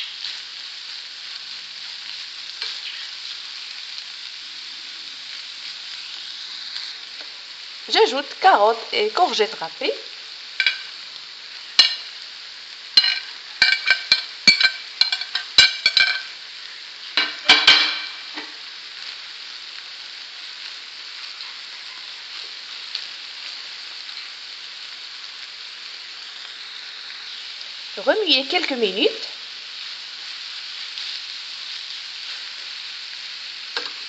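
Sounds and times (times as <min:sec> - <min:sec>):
meat sizzling in a frying pan: 0:00.0 - 0:34.0
spoon scraping a pan: 0:10.6 - 0:11.0, 0:11.7 - 0:12.2, 0:13.0 - 0:16.4, 0:17.2 - 0:18.6.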